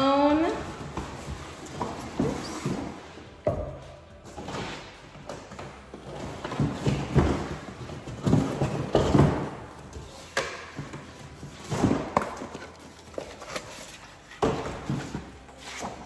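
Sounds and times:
cardboard rustling and scraping: 5.9s - 16.0s.

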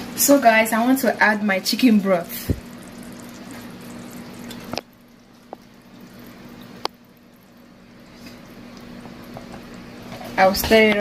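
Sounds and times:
steady low hum: 0.0s - 11.0s
broth pouring into pot: 1.6s - 10.4s.

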